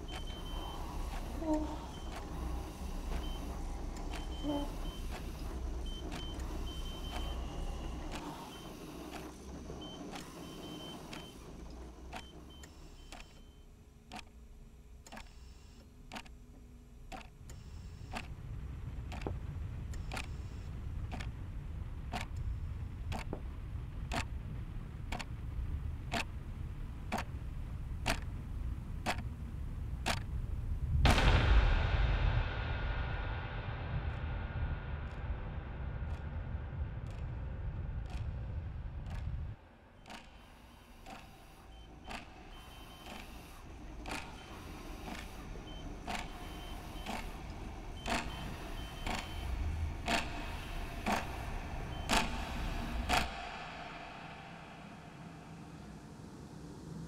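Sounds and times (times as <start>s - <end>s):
low steady drone: 0.0s - 13.5s, 17.5s - 57.0s
wall clock ticking: 0.0s - 14.4s, 17.1s - 30.4s, 37.0s - 54.4s.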